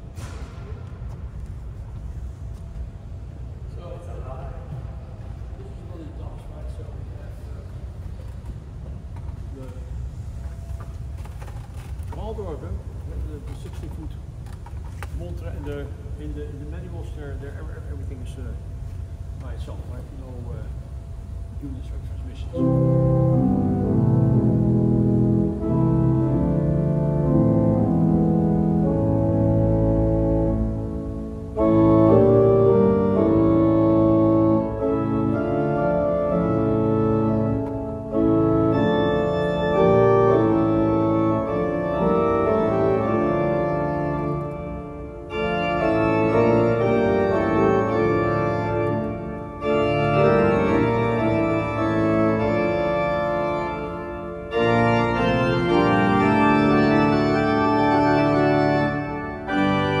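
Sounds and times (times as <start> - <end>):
pipe organ chords: 15.4 - 60.0.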